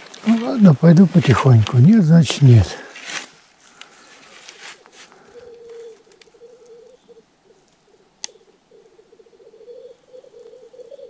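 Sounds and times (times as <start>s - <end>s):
grouse cooing warble: 5.1s - 11.0s.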